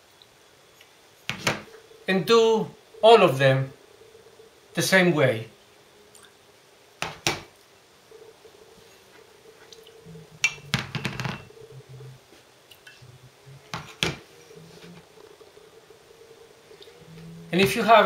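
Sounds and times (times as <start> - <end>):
ceramic ramekins clinking: 10.4 - 11.5.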